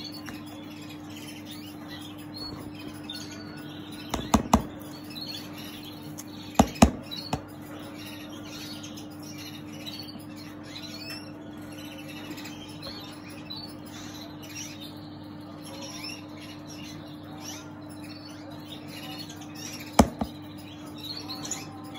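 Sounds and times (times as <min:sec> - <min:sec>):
cage birds chirping: 0:00.0 - 0:21.9
sharp knocks: 0:04.1 - 0:04.8, 0:06.6 - 0:07.5, 0:20.0 - 0:20.4.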